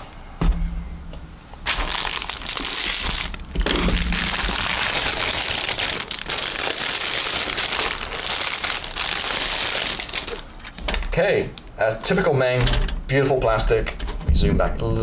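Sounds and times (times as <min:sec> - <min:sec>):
plastic bag crinkling: 0:01.6 - 0:11.1.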